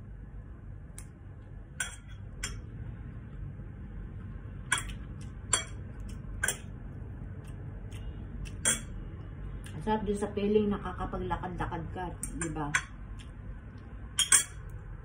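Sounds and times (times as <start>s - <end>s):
steady low hum: 0.0s - 15.0s
cutlery clinking on ceramic bowl: 1.8s - 2.6s, 4.7s - 5.8s, 6.4s - 6.7s, 8.6s - 9.0s, 14.2s - 14.7s.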